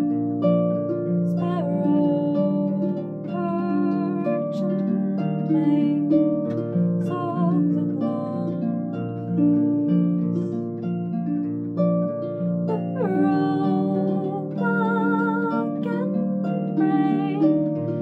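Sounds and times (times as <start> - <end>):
harp plucking: 0.0 - 18.0
woman singing: 1.3 - 6.3, 7.0 - 10.6, 12.7 - 18.0.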